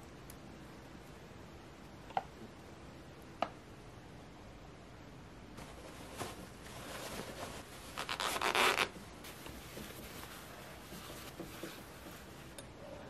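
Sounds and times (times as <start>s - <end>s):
cloth rustling and rubbing: 5.6s - 12.6s.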